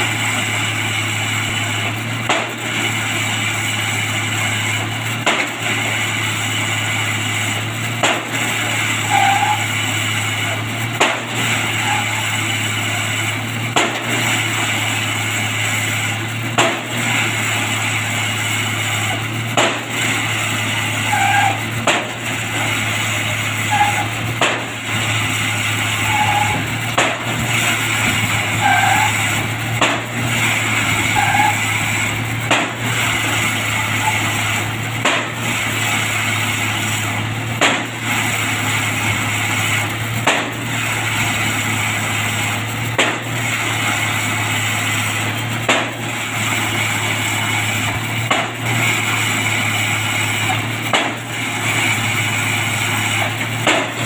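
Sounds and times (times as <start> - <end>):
winch engine running: 0.0 - 54.0
pile driver hammer strikes: 1.8 - 2.9, 5.2 - 6.0, 7.9 - 8.8, 10.9 - 11.8, 13.7 - 15.0, 16.5 - 17.4, 19.1 - 20.9, 21.7 - 22.7, 24.3 - 25.1, 26.0 - 36.3, 37.0 - 38.4, 39.8 - 41.4, 42.8 - 44.0, 45.5 - 47.2, 47.8 - 49.2, 50.4 - 51.4, 53.0 - 54.0.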